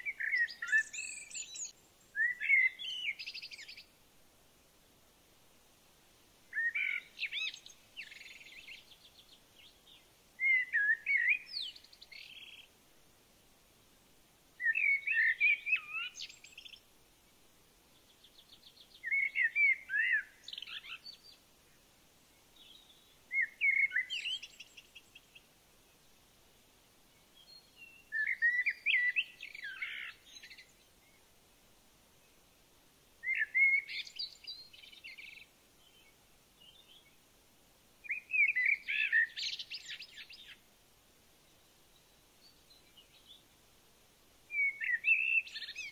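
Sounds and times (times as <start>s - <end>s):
songbird singing whistled trills: 0.0s - 3.9s, 6.5s - 12.7s, 14.6s - 16.9s, 18.0s - 21.4s, 22.5s - 25.5s, 27.1s - 31.3s, 33.2s - 37.2s, 38.0s - 40.6s, 41.5s - 43.5s, 44.5s - 45.9s.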